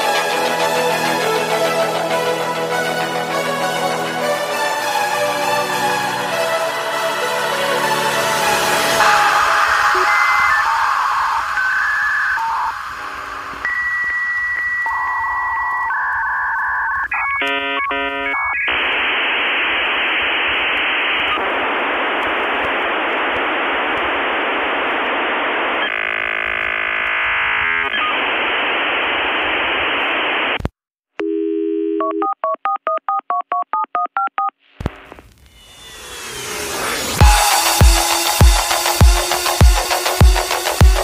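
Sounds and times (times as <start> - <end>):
music: 0.0 - 15.0, 37.2 - 41.0
telephone beeps: 9.0 - 18.7
alternating beeps: 9.0 - 18.8
dialing tones: 9.0 - 19.1, 31.2 - 34.6.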